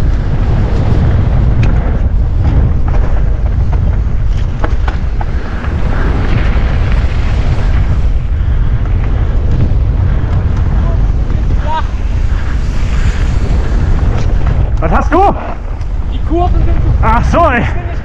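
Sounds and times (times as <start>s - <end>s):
bike clicks and rattles: 0.0s - 6.1s
wind buffeting microphone: 0.0s - 18.0s.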